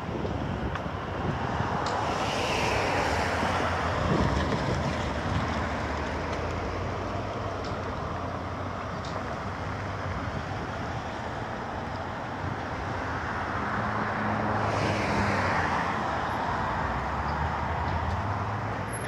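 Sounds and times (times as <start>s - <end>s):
low traffic rumble: 0.0s - 19.0s
car passing close by: 1.2s - 6.2s, 13.5s - 18.6s.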